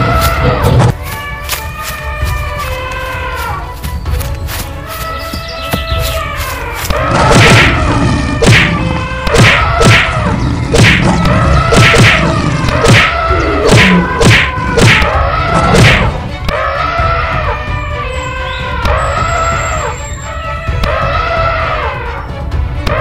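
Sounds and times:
background music: 0.0 - 23.0
cartoon whacks and thuds: 7.2 - 7.8, 8.4 - 16.2.

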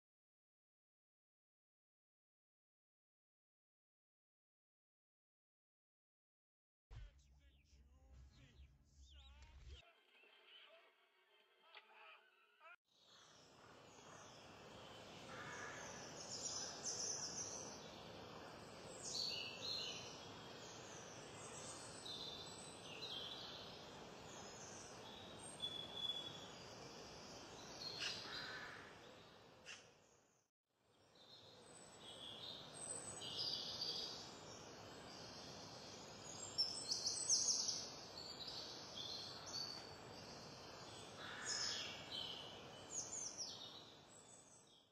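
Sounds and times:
songbirds chirping: 13.0 - 44.9
background hiss: 13.1 - 29.2.

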